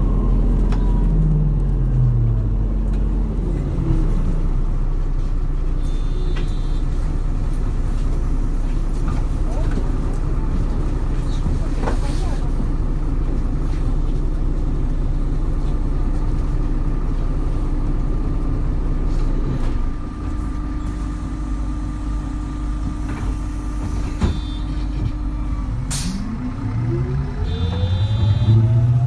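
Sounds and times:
bus engine rumble and whine: 0:00.0 - 0:29.0.

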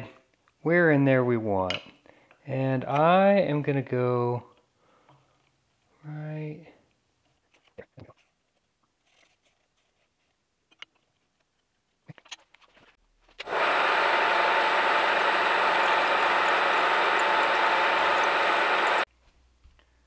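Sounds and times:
drilling machine boring: 0:13.4 - 0:19.1.

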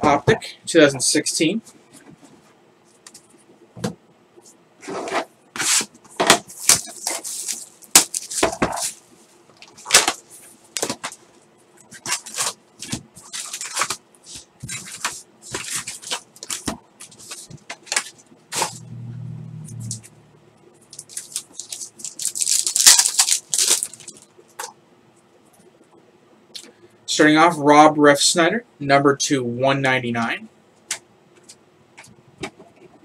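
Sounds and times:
foil packs crinkling: 0:06.5 - 0:09.0, 0:11.9 - 0:18.7, 0:20.9 - 0:24.3
low hum: 0:18.6 - 0:20.9.

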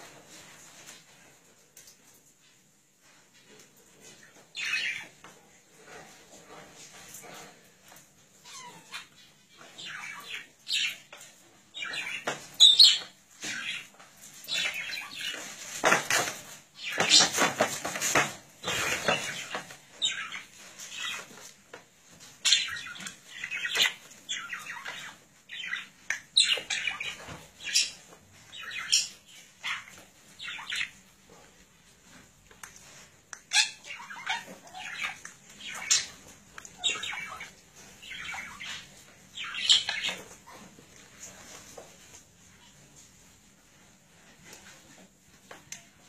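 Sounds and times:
budgerigar chirping and squawking: 0:33.4 - 0:40.4.

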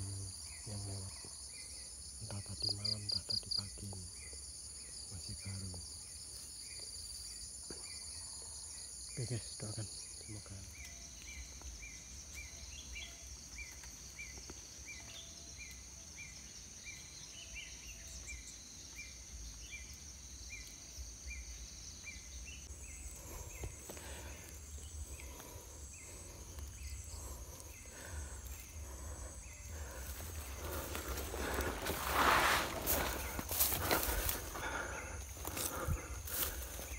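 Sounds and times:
insects chirping: 0:00.0 - 0:36.9
footsteps through dry grass: 0:29.8 - 0:36.9.

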